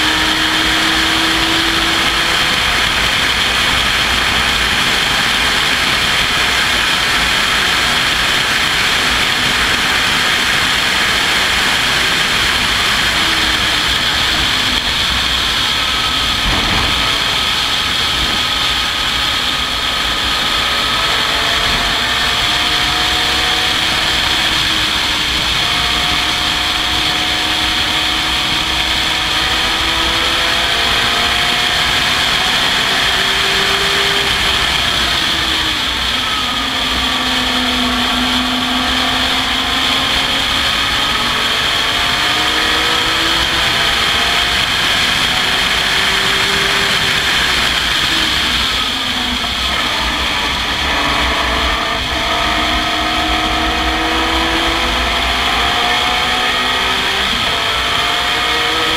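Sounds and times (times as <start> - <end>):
racing car engine accelerating: 0.0 - 58.9
wind rushing: 11.6 - 25.2.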